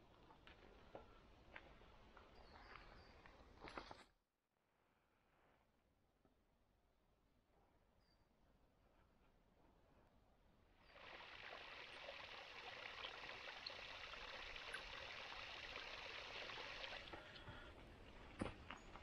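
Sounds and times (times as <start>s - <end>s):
water trickling onto rocks: 11.0s - 19.0s.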